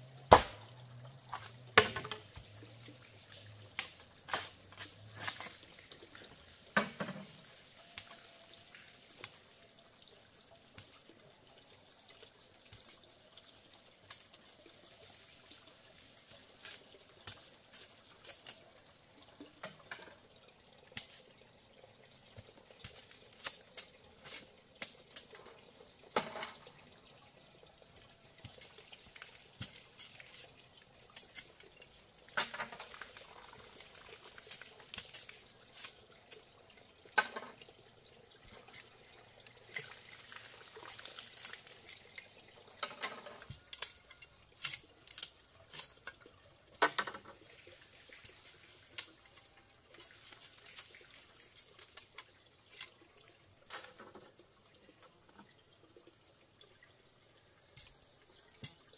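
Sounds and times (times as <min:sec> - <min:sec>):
water splashing and dripping: 0:00.0 - 0:58.9.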